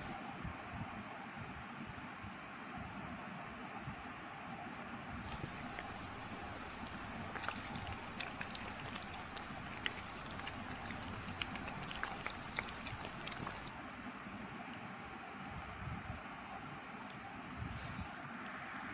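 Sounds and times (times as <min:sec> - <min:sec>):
kitten licking wetly: 0:05.2 - 0:13.7.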